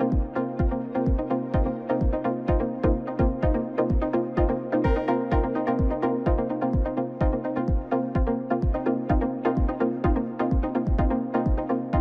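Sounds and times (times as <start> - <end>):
electronic music with beat: 0.0 - 12.0.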